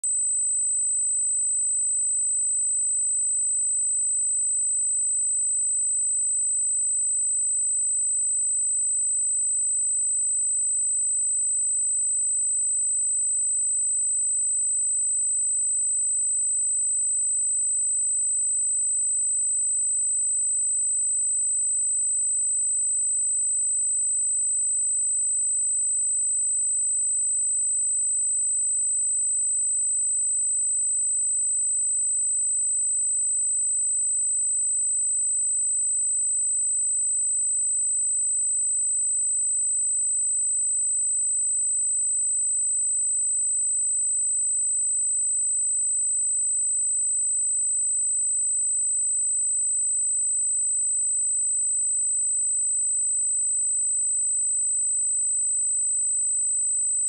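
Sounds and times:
high-pitched sine test tone: 0.0 - 57.0.

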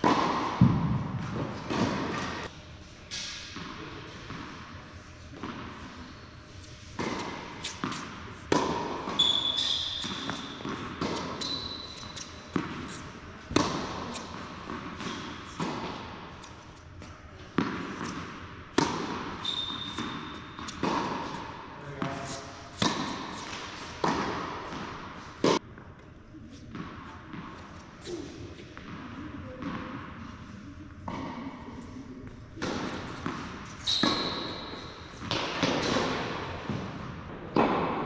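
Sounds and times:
tennis balls bouncing and struck: 0.0 - 2.5, 6.6 - 25.6, 26.7 - 27.8, 28.6 - 30.2, 31.0 - 38.0
sneaker squeaks: 6.0 - 17.1, 17.8 - 24.8, 32.7 - 36.1.

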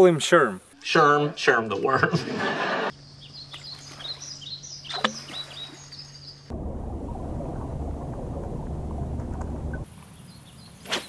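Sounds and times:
small birds chirping: 2.9 - 6.5, 9.8 - 11.0
muffled underwater rumble: 6.5 - 9.9.

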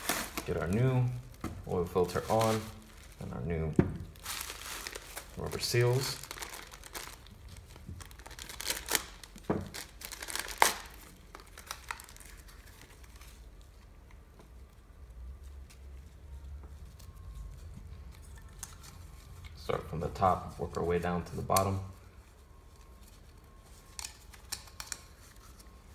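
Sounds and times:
plastic packet crinkling: 0.0 - 13.6.

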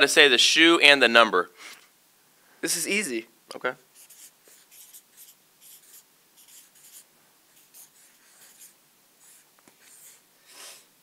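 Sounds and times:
pens scratching on paper: 4.0 - 10.2.

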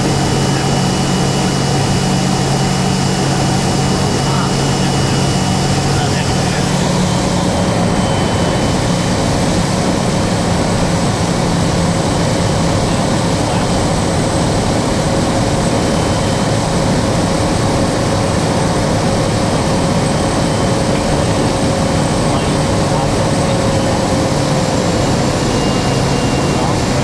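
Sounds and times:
turboprop engine drone: 0.0 - 27.0
thin high whine: 20.1 - 27.0.

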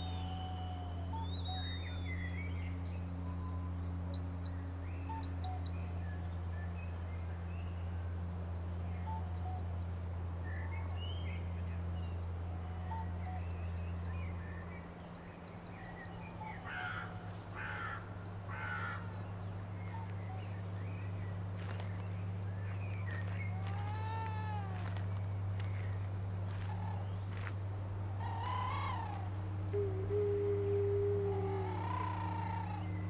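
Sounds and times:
rising-and-falling bird call: 0.0 - 2.6, 28.2 - 33.0
steady low hum: 0.0 - 33.0
harsh crow-like caws: 16.6 - 19.1, 23.6 - 25.0, 28.2 - 29.3, 31.4 - 32.8.

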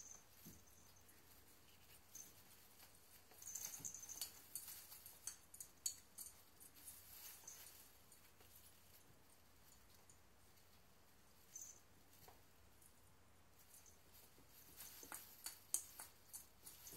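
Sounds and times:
artificial tree branches rustling: 0.0 - 16.9.

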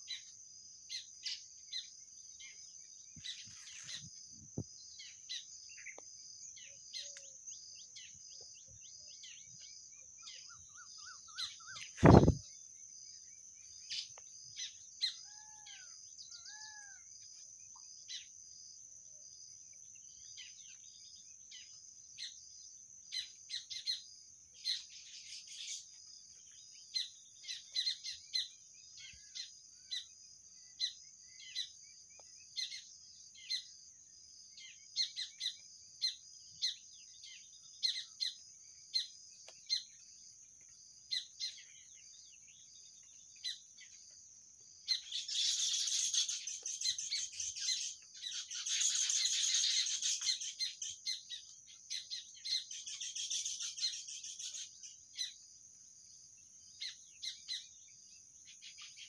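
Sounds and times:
birds chirping: 0.9 - 17.0, 44.9 - 55.4
whistled bird notes: 10.2 - 12.5, 44.9 - 51.4.

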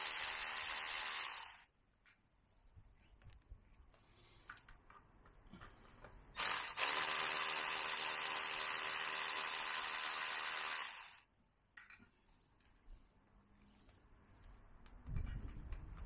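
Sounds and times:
cordless power tool motor running: 6.4 - 11.2.

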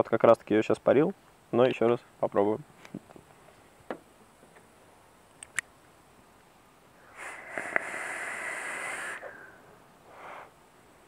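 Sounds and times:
small click: 5.3 - 5.7
airy hiss with thin whistle: 6.9 - 11.0.

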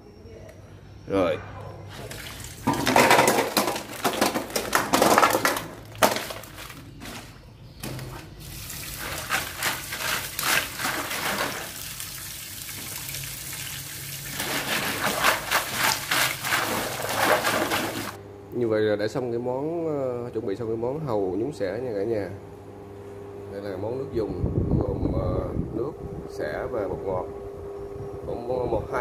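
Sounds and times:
tap water running: 2.0 - 4.4, 8.4 - 18.2.

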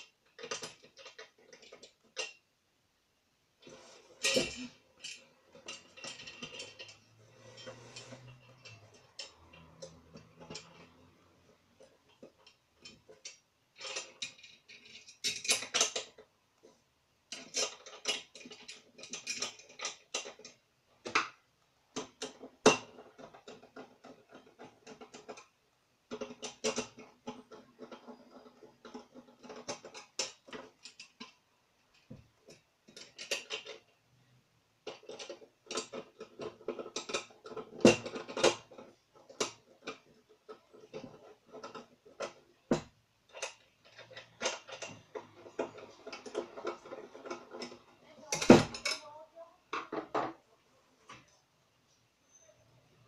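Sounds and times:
metal clicks and clinks: 0.0 - 2.4, 4.2 - 16.3, 17.3 - 21.2, 34.8 - 50.2.

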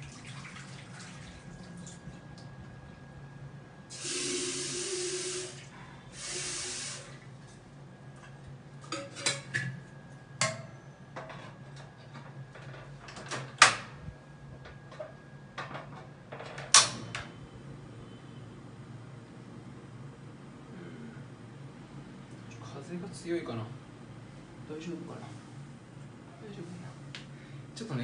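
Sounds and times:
tap water running into kettle: 0.0 - 2.0, 3.9 - 7.2.

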